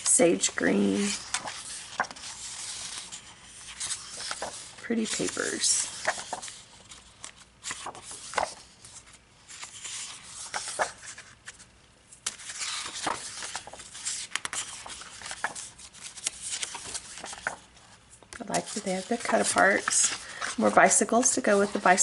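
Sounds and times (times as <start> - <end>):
paper sheets rustling and flicking: 0.0 - 22.0.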